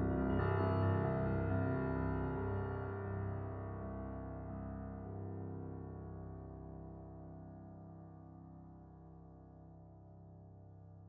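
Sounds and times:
grand piano chords: 0:00.0 - 0:05.5.

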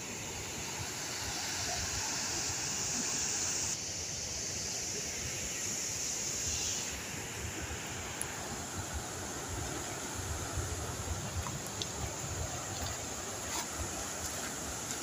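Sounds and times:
river rushing over rapids: 0:00.0 - 0:15.0.

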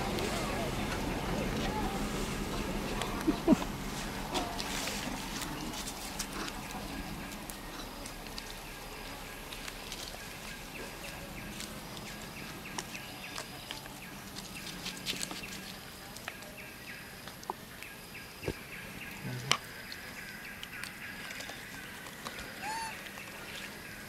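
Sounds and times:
high-pitched animal calls: 0:22.6 - 0:23.1.

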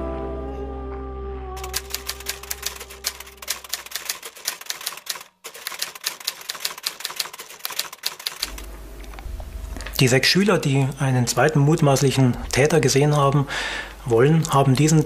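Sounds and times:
typewriter keys clacking: 0:01.6 - 0:08.6.

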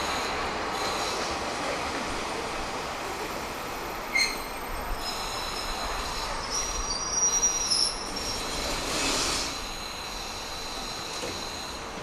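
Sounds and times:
train rolling on rails: 0:00.0 - 0:12.0
wheels squealing: 0:04.0 - 0:11.8.

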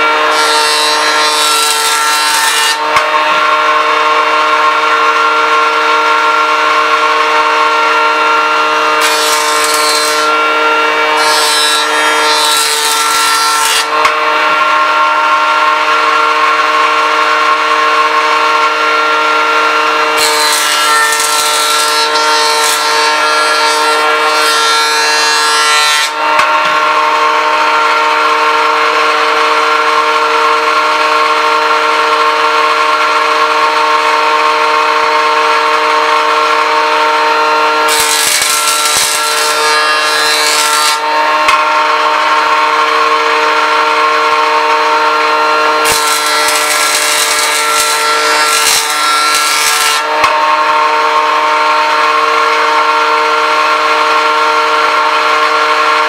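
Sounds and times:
jointer motor whine: 0:00.0 - 0:56.0
jointer hissing cut through wood: 0:08.9 - 0:14.1, 0:20.1 - 0:26.5, 0:37.3 - 0:41.6, 0:44.6 - 0:50.7.

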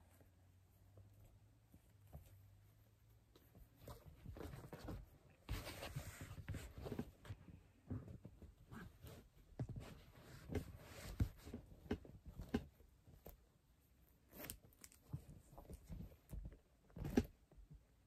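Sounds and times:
fabric rustling: 0:00.0 - 0:17.4
zipper fiddling: 0:14.2 - 0:15.0.

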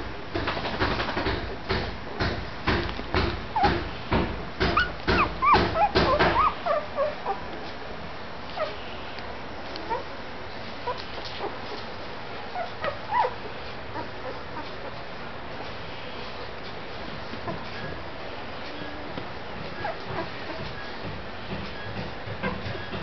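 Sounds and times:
loud rustling knocks: 0:00.0 - 0:06.6
puppies squeaking and whimpering: 0:03.6 - 0:03.8, 0:04.6 - 0:07.6, 0:08.5 - 0:11.9, 0:12.5 - 0:15.0, 0:17.2 - 0:18.1, 0:19.1 - 0:21.0.

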